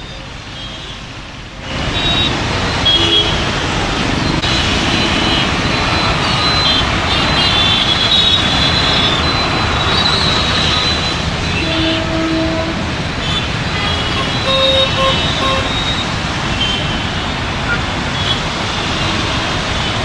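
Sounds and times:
engines running in traffic: 0.0s - 20.0s
vehicle horn toots: 2.0s - 3.4s, 11.5s - 16.0s.

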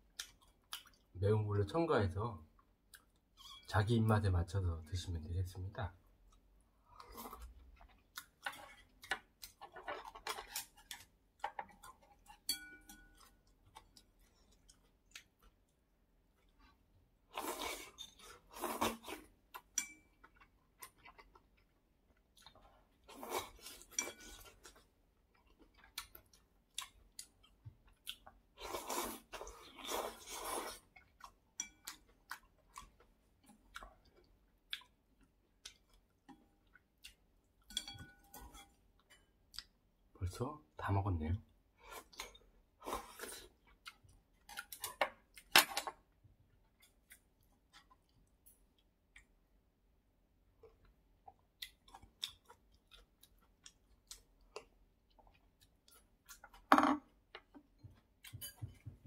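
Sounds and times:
chewing: 17.4s - 37.3s, 50.6s - 56.6s.

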